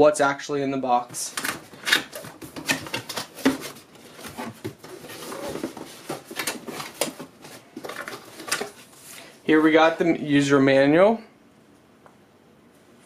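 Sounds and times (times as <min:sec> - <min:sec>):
cardboard box packaging rustling: 0:01.1 - 0:09.2.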